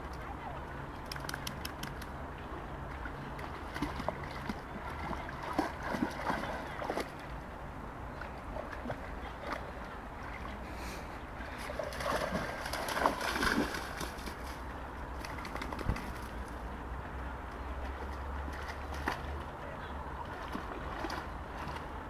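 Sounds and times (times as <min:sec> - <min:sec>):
dog splashing in shallow water: 0:03.4 - 0:07.2, 0:11.6 - 0:14.6, 0:20.3 - 0:21.9.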